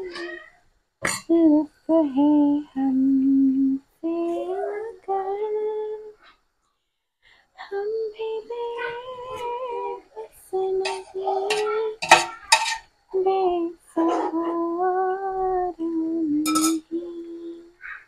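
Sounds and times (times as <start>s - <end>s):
metal tongs clanking against pot: 10.8s - 12.8s, 16.5s - 16.9s.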